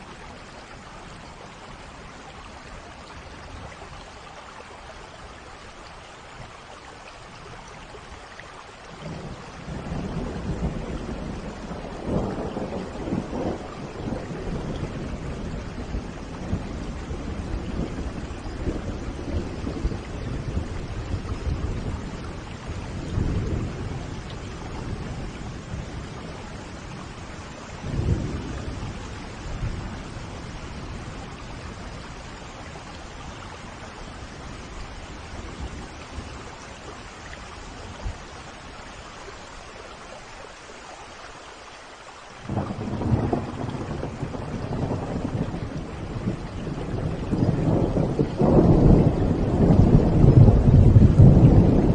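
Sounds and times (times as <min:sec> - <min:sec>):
steady rain: 0:00.0 - 0:51.9
rolls of thunder: 0:09.0 - 0:32.2, 0:42.5 - 0:51.9.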